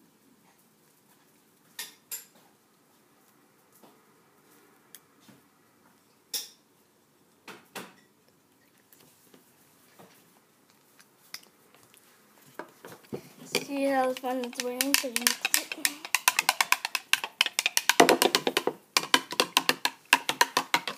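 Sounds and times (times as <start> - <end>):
object clinking against plastic cup: 13.6 - 20.9.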